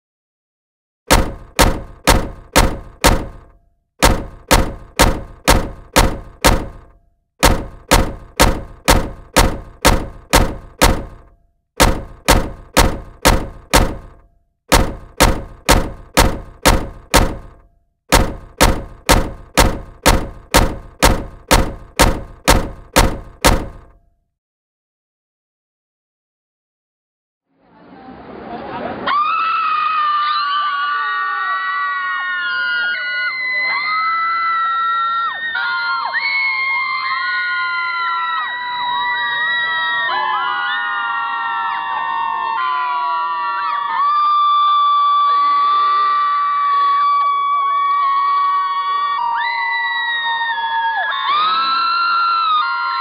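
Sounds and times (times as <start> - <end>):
heavy thunk sound effects: 1.1 - 24.0.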